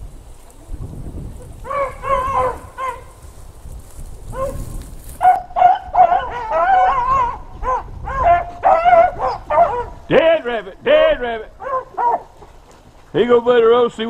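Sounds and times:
pack of dogs baying: 1.4 - 3.2, 4.3 - 13.7.

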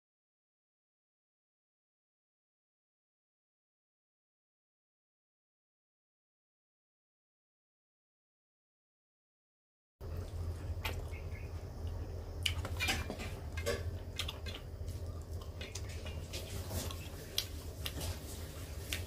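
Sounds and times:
steady low hum: 10.0 - 19.0.

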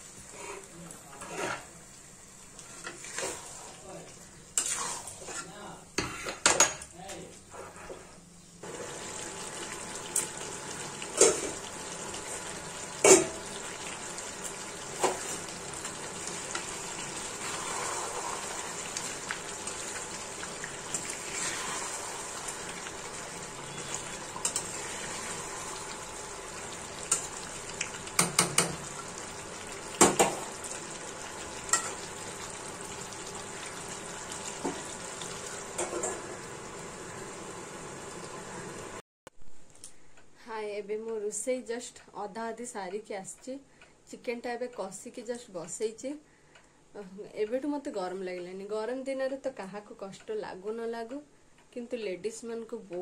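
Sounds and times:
curry sizzling in a pan: 0.0 - 6.8, 7.5 - 39.0.

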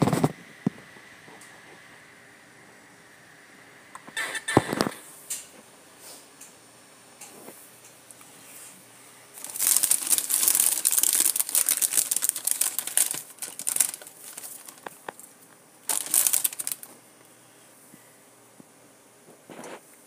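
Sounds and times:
crinkling crackling noise: 0.0 - 1.8, 4.0 - 5.6, 9.4 - 17.3, 19.2 - 20.0.

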